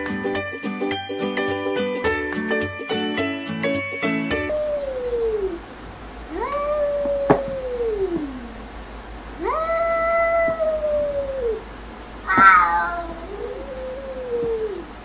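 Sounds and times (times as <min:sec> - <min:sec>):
cat meowing: 0:06.3 - 0:08.4, 0:12.3 - 0:14.8.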